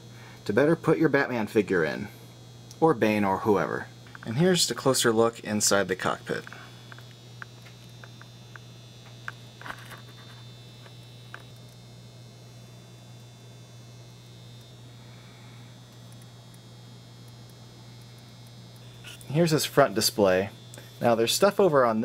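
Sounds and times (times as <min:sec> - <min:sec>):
faint high whine: 0:00.0 - 0:22.0
low electrical hum: 0:00.0 - 0:22.0
small clicks: 0:15.9 - 0:19.3.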